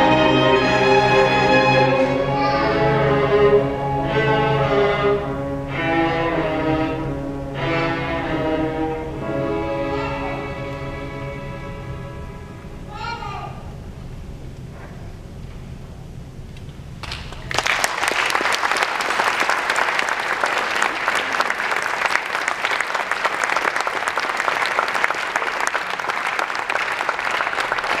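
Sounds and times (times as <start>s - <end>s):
orchestra low held note: 0.0s - 13.0s
audience applause: 17.0s - 28.0s.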